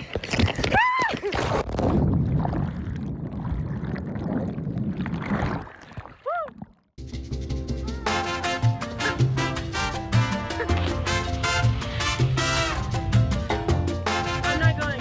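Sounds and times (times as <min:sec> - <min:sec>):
muffled underwater bubbling: 0:01.7 - 0:06.8.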